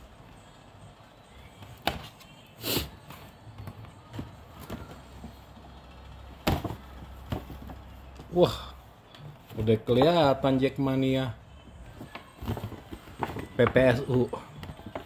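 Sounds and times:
paper bag rustling and crinkling: 12.0s - 15.0s.

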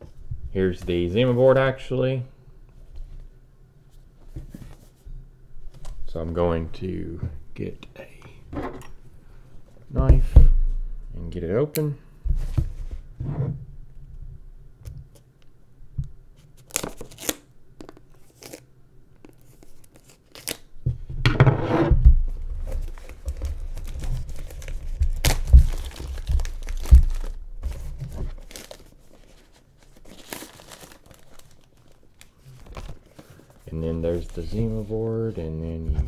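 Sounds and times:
plastic wrap tearing and crinkling: 16.6s - 20.7s, 22.6s - 33.5s.

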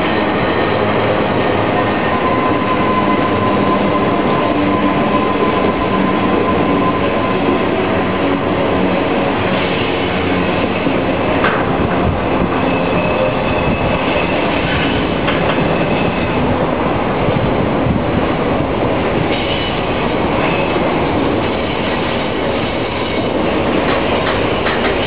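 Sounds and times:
steel wheels rumbling on rail: 0.0s - 25.0s
high wheel squeal: 1.8s - 8.3s, 12.3s - 16.6s.

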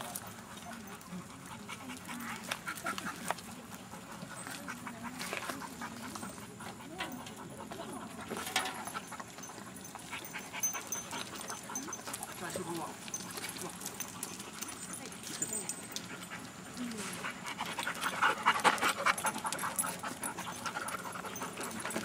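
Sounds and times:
dogs panting: 0.0s - 22.0s.

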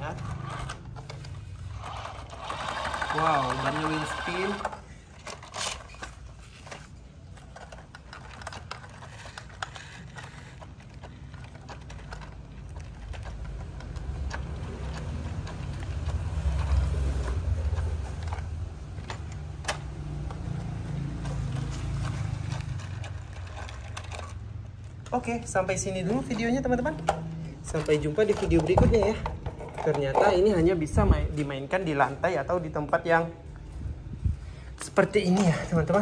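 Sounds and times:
toy car motor whirring: 0.0s - 19.1s.

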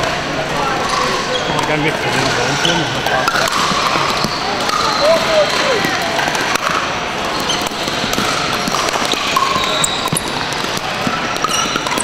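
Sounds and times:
murmur of distant voices: 0.0s - 12.0s
paddles hitting plastic balls: 0.8s - 12.0s
shoe squeaks: 0.9s - 3.0s, 3.8s - 6.0s, 7.3s - 12.0s.

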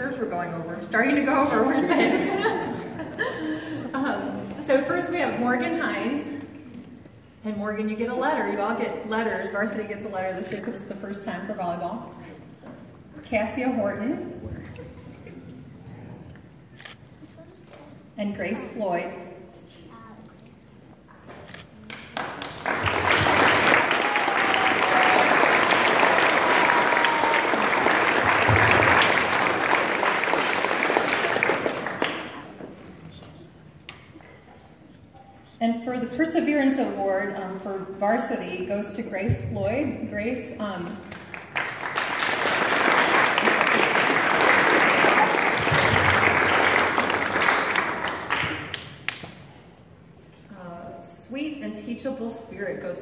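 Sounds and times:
audience clapping: 1.0s - 3.3s, 21.8s - 32.8s, 41.0s - 49.5s.

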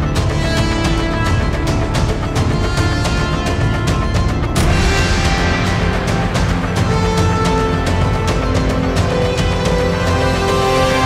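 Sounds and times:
background music with steady beat: 0.0s - 11.0s
cymbal-like swell: 4.5s - 11.0s.

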